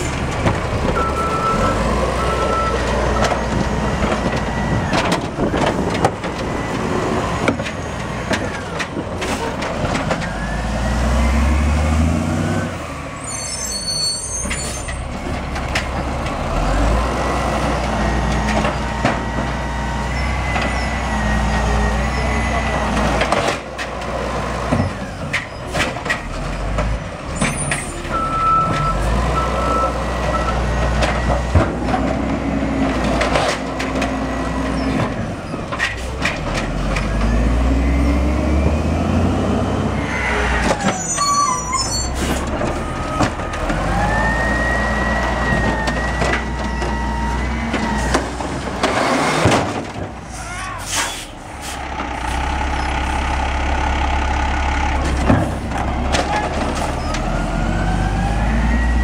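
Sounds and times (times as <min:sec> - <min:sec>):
diesel engine under load: 0:00.0 - 0:59.0
air brakes hissing: 0:50.3 - 0:52.4.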